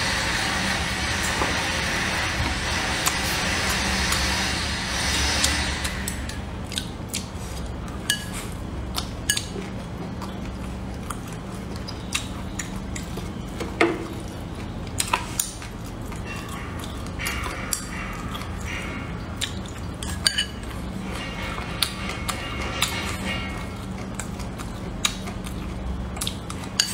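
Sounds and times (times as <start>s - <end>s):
low hum: 0.0s - 26.9s
chewing and mouth sounds: 5.5s - 26.9s.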